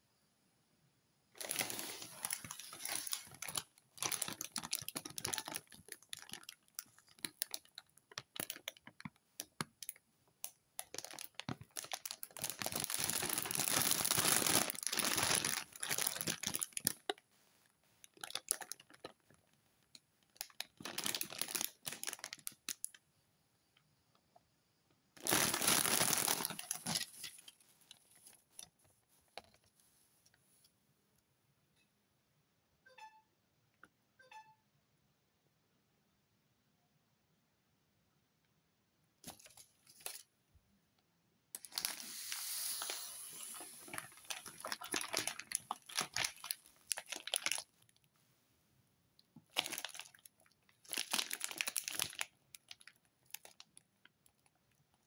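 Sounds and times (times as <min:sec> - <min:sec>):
plastic packaging crinkling: 0:01.4 - 0:10.0, 0:10.8 - 0:17.2, 0:18.0 - 0:23.0, 0:25.2 - 0:29.7, 0:39.2 - 0:40.3, 0:41.6 - 0:48.1, 0:49.4 - 0:54.8.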